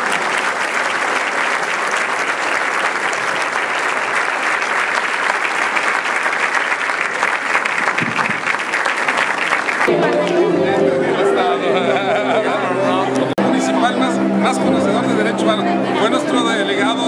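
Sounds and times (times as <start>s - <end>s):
audience applauding: 0.0s - 13.4s.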